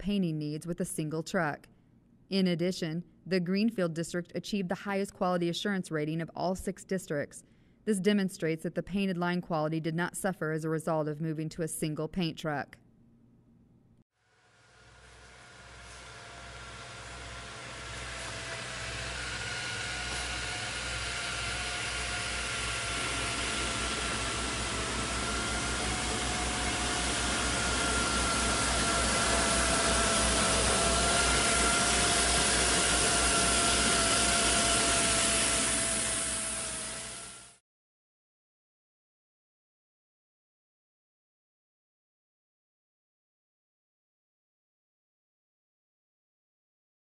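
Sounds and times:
truck engine with whine: 0:14.8 - 0:37.6.

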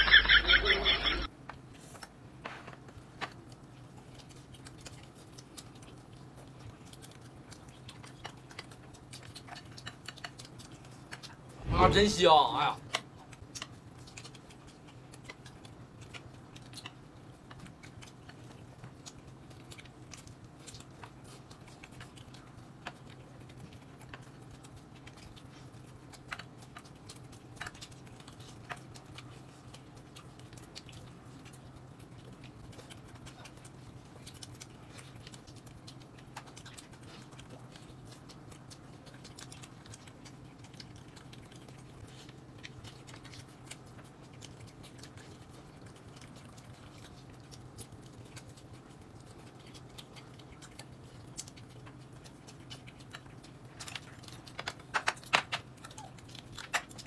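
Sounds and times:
faint steady hum: 0:00.0 - 0:57.0
person chewing food: 0:00.1 - 0:11.9, 0:12.8 - 0:57.0.

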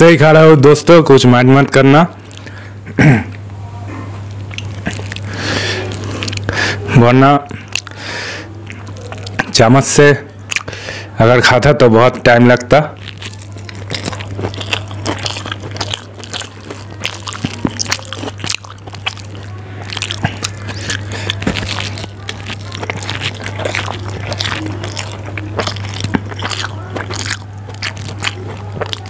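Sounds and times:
steady low hum: 0:00.0 - 0:29.0
wet chewing mouth clicks: 0:02.2 - 0:02.6, 0:04.3 - 0:06.6, 0:07.5 - 0:08.0, 0:08.6 - 0:09.6, 0:10.5 - 0:10.8, 0:13.0 - 0:29.0.

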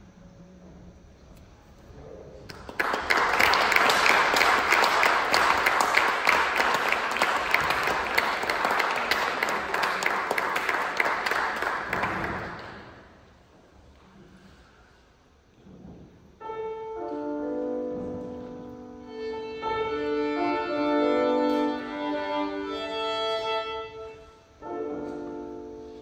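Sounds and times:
audience applauding: 0:02.5 - 0:13.2.

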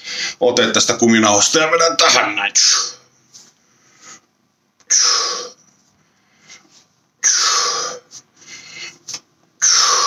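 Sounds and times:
man exhaling forcefully: 0:07.2 - 0:08.1, 0:09.6 - 0:10.0.

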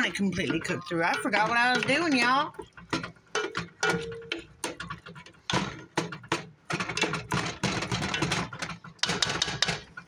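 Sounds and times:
spatula scraping metal pot: 0:00.0 - 0:10.0.

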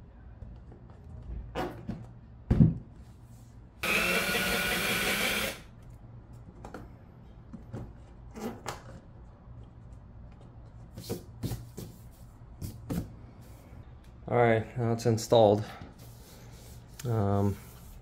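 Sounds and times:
cordless drill running: 0:03.8 - 0:05.7.

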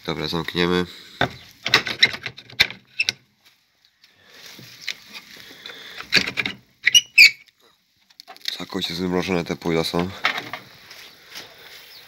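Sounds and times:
hutch doors knocking shut: 0:01.2 - 0:02.8
rustling: 0:01.3 - 0:09.0, 0:10.1 - 0:12.0.

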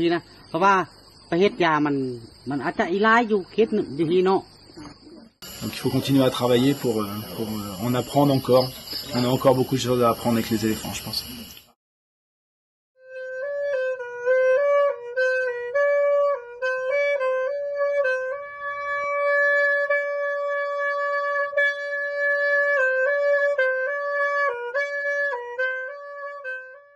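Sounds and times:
solo wind instrument melody: 0:13.0 - 0:26.9.

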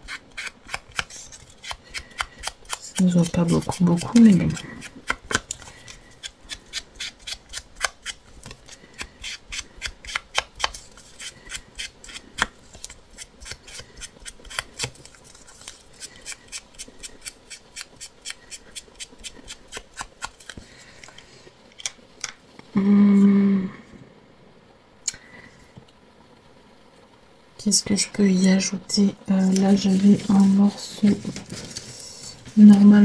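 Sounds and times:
scissors snipping: 0:00.0 - 0:05.6
person humming: 0:22.7 - 0:24.0.

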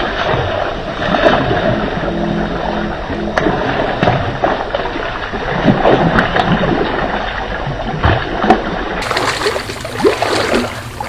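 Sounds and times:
fish splashing at water surface: 0:08.1 - 0:11.0.

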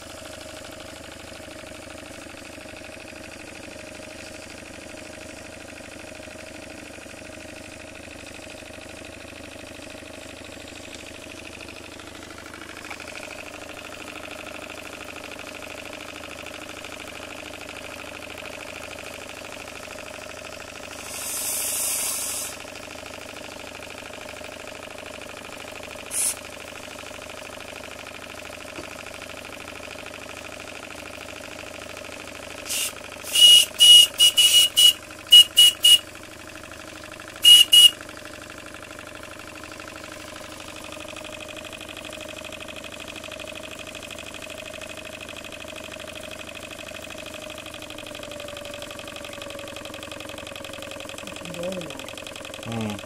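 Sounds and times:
steam engine running: 0:20.8 - 0:22.7, 0:26.0 - 0:26.4, 0:32.6 - 0:36.0, 0:37.4 - 0:38.0
steam hissing: 0:20.9 - 0:22.6, 0:26.1 - 0:26.4, 0:32.7 - 0:33.6.

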